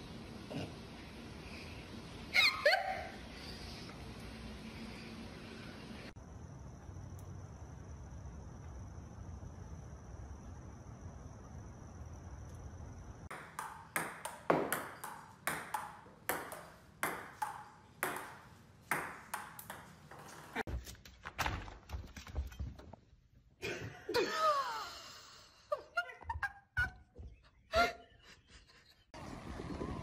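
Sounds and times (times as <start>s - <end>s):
ping-pong ball bouncing: 13.3s - 20.6s.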